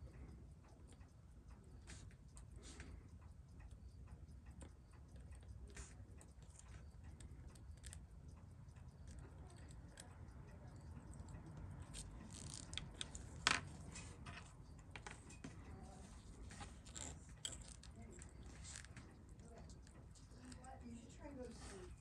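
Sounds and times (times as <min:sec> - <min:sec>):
low steady hum: 0:00.0 - 0:22.0
small metal tools clicking: 0:08.9 - 0:15.4, 0:16.8 - 0:20.7.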